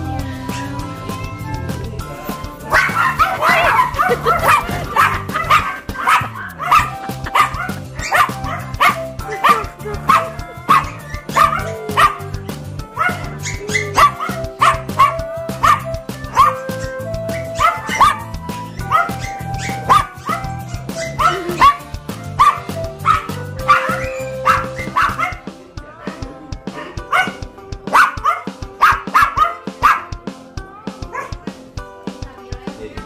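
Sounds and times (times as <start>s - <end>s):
background music: 0.0s - 33.0s
small dogs yapping: 2.7s - 12.2s, 13.0s - 25.4s, 27.0s - 30.1s.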